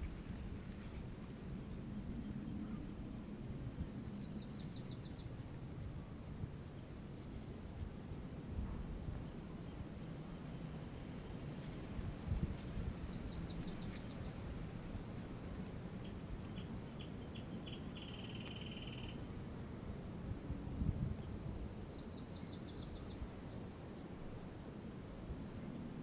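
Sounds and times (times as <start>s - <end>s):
low outdoor rumble: 0.0s - 26.0s
small birds singing: 3.8s - 5.4s, 9.7s - 19.2s, 20.1s - 24.9s.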